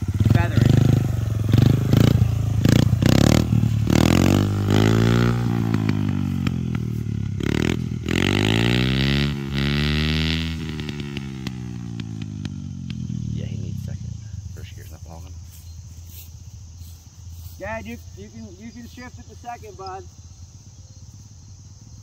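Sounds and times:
dirt bike engine revving: 0.0s - 14.8s.

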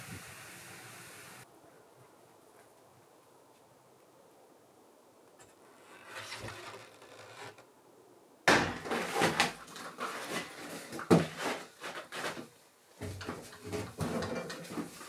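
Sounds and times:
wooden knocks and scrapes: 5.8s - 7.6s, 8.6s - 15.0s
sharp wooden thump: 8.5s - 9.4s.

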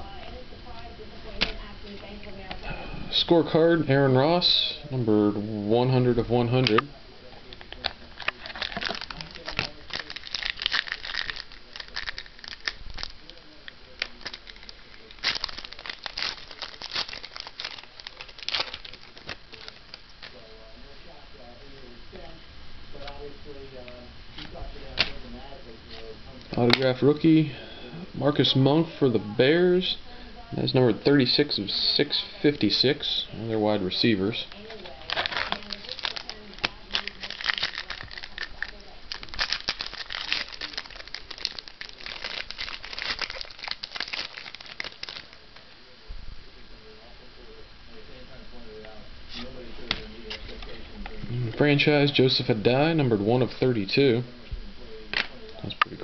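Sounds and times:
foil wrapper tearing and crinkling: 7.6s - 20.4s, 34.5s - 45.4s.

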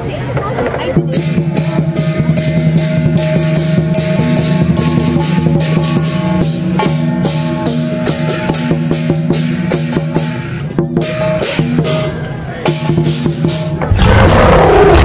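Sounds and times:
large drum beaten fast: 0.8s - 11.8s, 12.6s - 15.0s
crashing hand cymbals: 1.2s - 12.1s.

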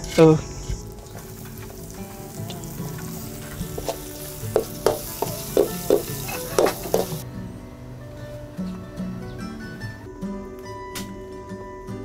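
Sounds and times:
meat sizzling in a wok: 0.8s - 7.2s
metal ladle scraping a pan: 1.0s - 7.2s.

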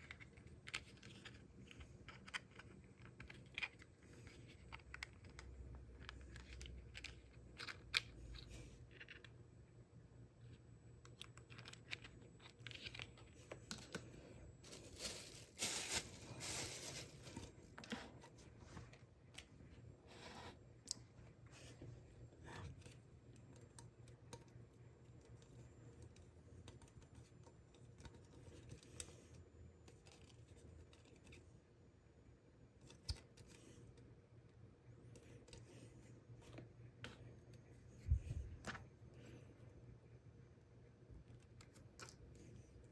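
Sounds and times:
faint low hum: 0.0s - 42.9s
plastic bags crinkling: 11.5s - 17.9s.

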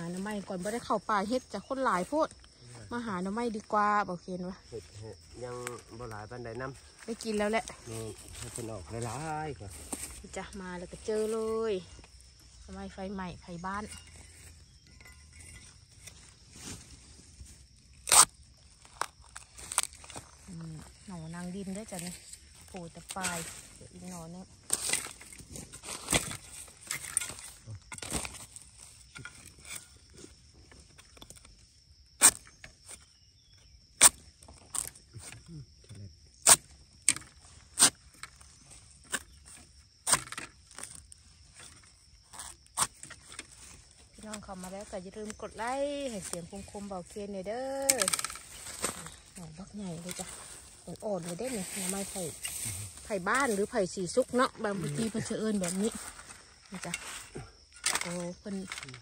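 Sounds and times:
high insect drone: 0.0s - 59.0s
blade chopping into soil: 32.2s - 32.6s.

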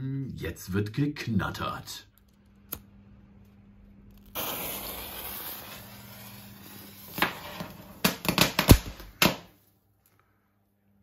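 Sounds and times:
fuse hissing: 4.3s - 7.6s
firework crackling bangs: 4.3s - 9.3s.

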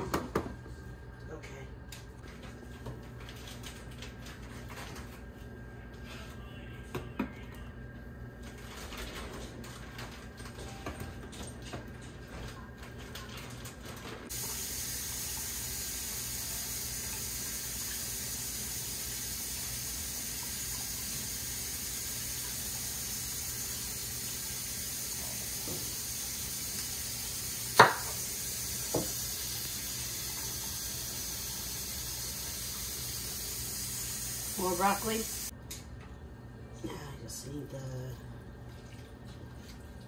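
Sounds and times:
kitchen tap running: 9.0s - 36.2s.

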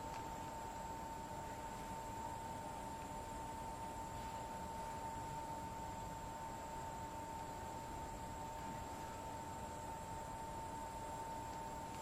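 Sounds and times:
faint high whine: 0.0s - 12.0s.

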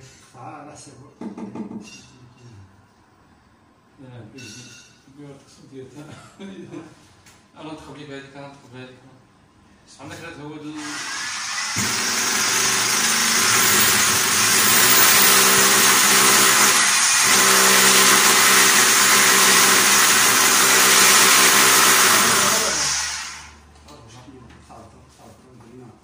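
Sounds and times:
power tool running into wall: 10.8s - 23.6s.

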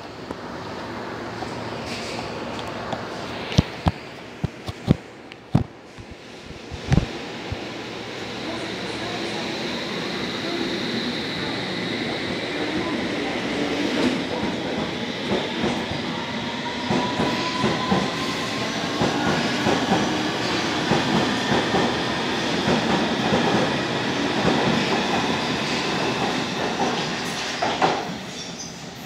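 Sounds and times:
train wheels clattering on rails: 13.8s - 16.1s, 16.8s - 28.8s.

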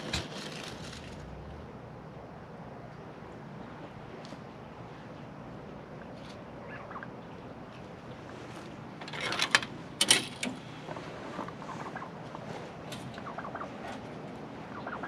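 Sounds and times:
loud rustling flurry: 0.0s - 1.3s
steady background hiss: 0.0s - 15.0s
turkeys and chickens clucking: 5.9s - 7.5s, 10.8s - 15.0s.

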